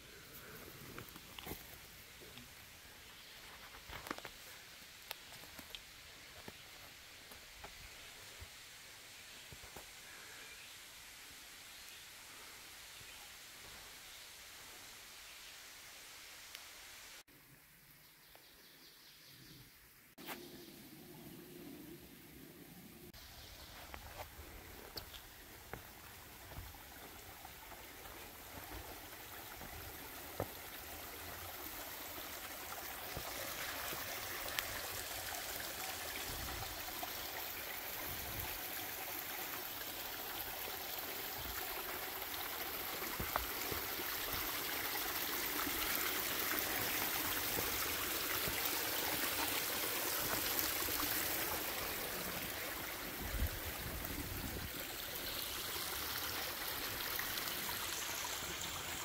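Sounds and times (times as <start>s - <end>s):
stream water rushing over rocks: 23.7s - 59.0s.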